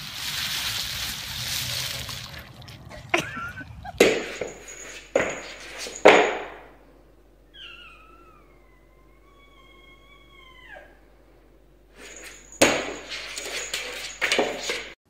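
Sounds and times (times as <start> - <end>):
ice cubes crunching and shifting: 0.0 - 4.4
cat meowing: 7.5 - 11.0.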